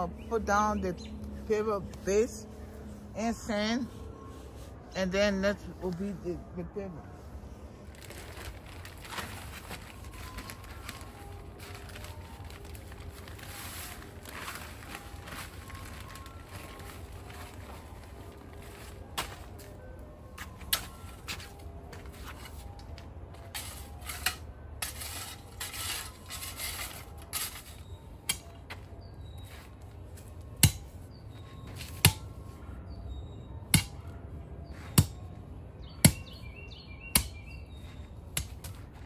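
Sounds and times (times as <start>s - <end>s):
gravelly scraping rustle: 7.8s - 19.8s.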